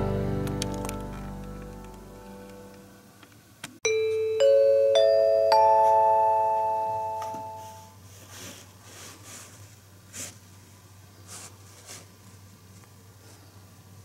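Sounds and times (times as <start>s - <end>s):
rising announcement chime: 3.9s - 7.9s.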